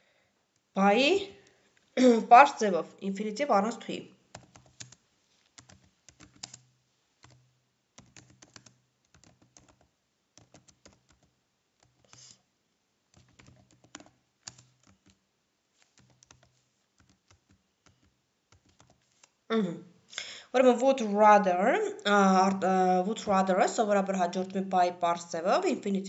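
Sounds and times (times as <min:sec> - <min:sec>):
typing on computer keyboard: 0:04.3 - 0:12.4, 0:13.1 - 0:15.2, 0:15.8 - 0:19.4.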